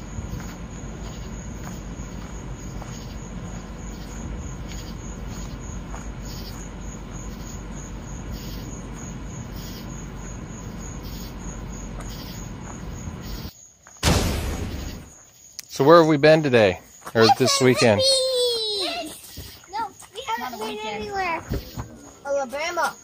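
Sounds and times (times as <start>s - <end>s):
road and tyre noise in car: 0.0s - 13.6s.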